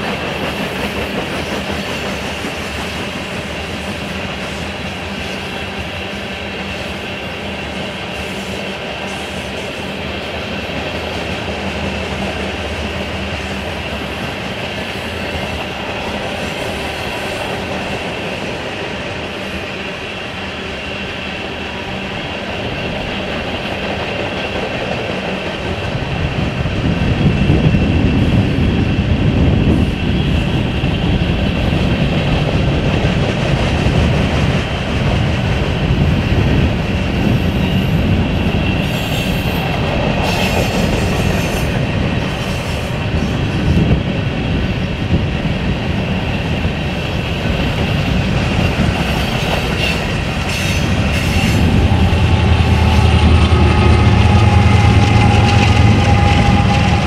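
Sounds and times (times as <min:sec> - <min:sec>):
freight train wheels rumbling: 0:00.0 - 0:57.0
wheels squealing: 0:48.5 - 0:57.0.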